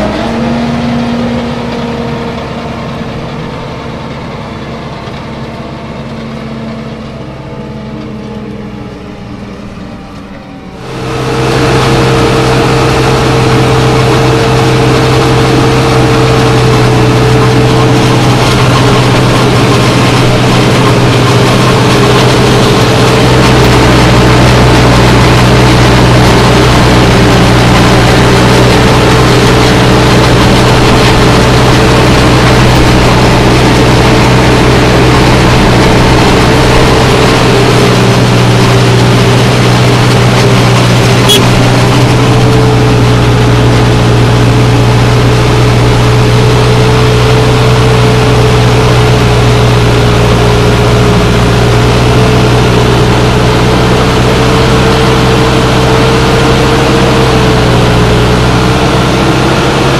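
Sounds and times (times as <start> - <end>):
tractor engine: 0.0 - 59.9
rushing noise: 8.3 - 59.9
harvester chopping maize: 10.8 - 59.9.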